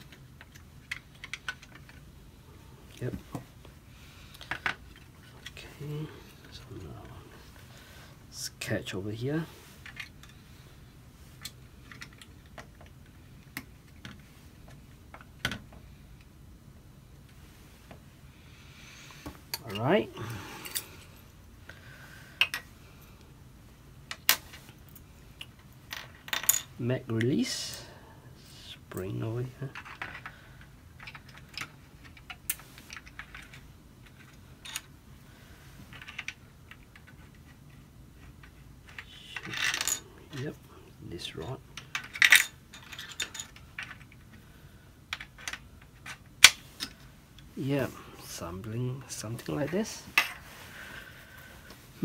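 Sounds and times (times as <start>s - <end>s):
plastic parts clicking: 0.0s - 2.1s.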